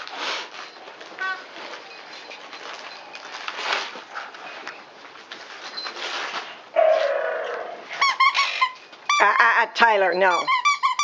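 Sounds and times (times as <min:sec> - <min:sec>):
wrapping paper rustling: 0:00.0 - 0:07.1.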